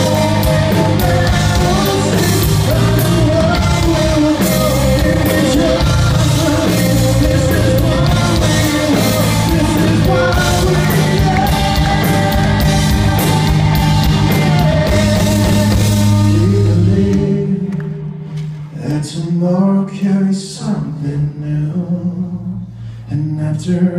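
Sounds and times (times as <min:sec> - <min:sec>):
live rock band playing: 0:00.0 - 0:18.7.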